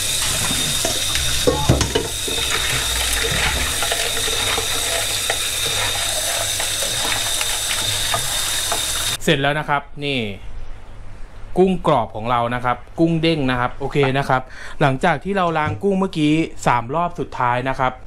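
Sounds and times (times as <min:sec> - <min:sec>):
tap water running into sink: 0:00.0 - 0:09.2
water splashing over shrimp: 0:00.0 - 0:09.2
knocks: 0:00.8 - 0:02.4.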